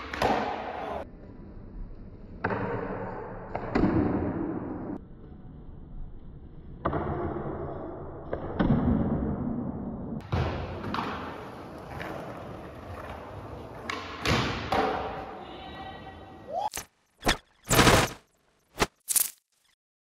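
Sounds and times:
skateboard wheels rolling on pavement: 10.2s - 15.3s.

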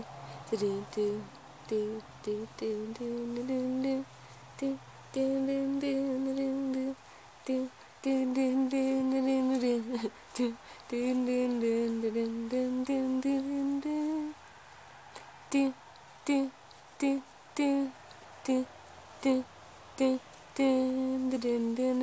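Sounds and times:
person humming a slow tune: 0.0s - 14.4s
faint rustling: 0.0s - 22.0s.

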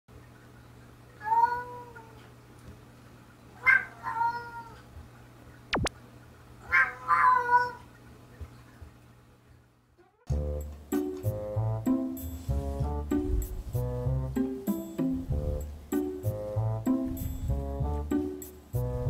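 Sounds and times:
cats meowing: 1.2s - 2.3s, 3.6s - 4.9s, 6.6s - 7.9s
sharp sweeping tone: 5.7s - 5.9s.

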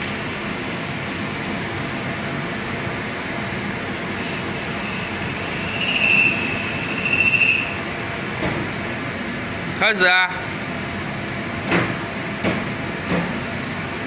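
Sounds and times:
high-pitched welding machine whine: 0.0s - 8.3s
workshop machinery hum: 0.0s - 14.0s.

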